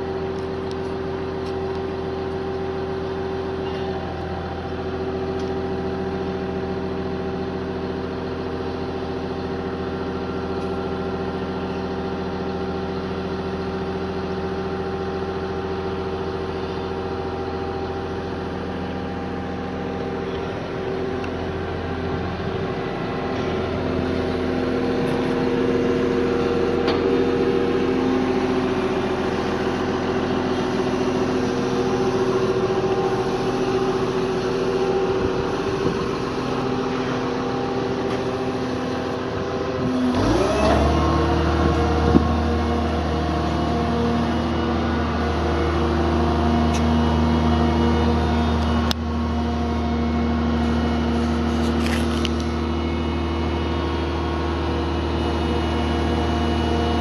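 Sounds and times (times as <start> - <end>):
engine idling with steady hum: 0.0 - 57.0.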